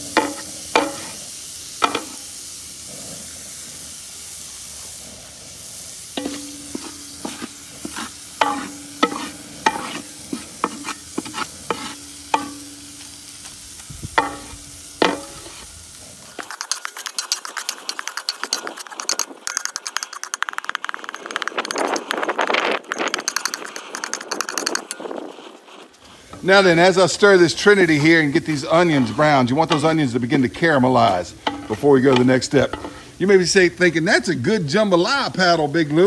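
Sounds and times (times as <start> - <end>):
vegetables sizzling in grease: 0.0 - 21.6, 26.0 - 36.0
wooden paddle knocking pot: 6.2 - 10.0, 14.2 - 15.5, 16.4 - 25.0
fast clatter of stirring: 6.2 - 12.6, 16.3 - 26.0.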